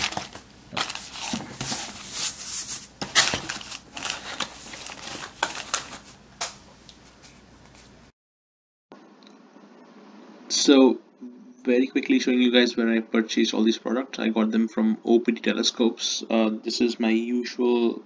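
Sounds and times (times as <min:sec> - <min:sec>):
cardboard box rustling and scraping: 0:00.0 - 0:06.1.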